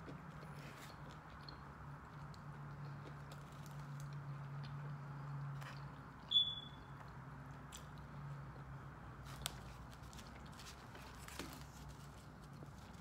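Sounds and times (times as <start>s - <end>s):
person chewing: 0.0s - 6.3s.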